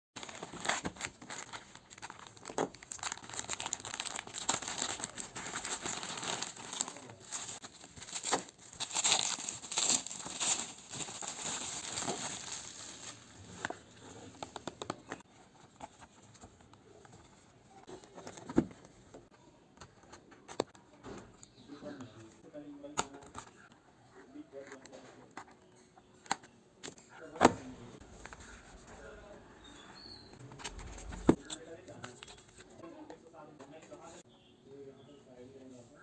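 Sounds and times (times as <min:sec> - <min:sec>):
plastic packaging crinkling and tearing: 0:00.2 - 0:13.8.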